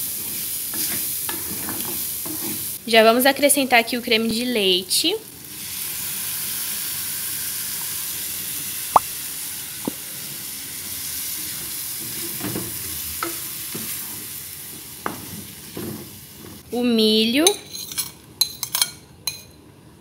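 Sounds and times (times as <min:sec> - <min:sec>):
wooden spoon stirring a pan: 0:00.0 - 0:02.8
food sizzling in a frying pan: 0:00.0 - 0:16.7.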